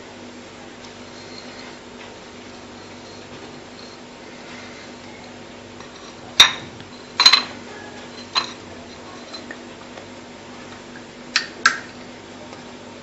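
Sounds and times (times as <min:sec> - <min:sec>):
dishes and utensils clinking: 0:01.1 - 0:09.6.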